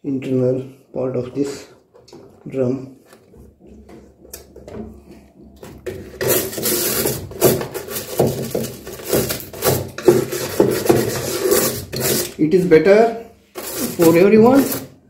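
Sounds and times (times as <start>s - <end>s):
bristle brush scrubbing: 6.2s - 12.4s, 13.4s - 15.0s.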